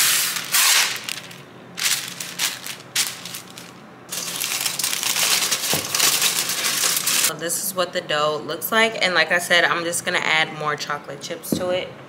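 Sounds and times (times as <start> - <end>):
wax paper rustling and tearing: 0.0 - 7.3
crinkling paper and foil: 0.4 - 7.3.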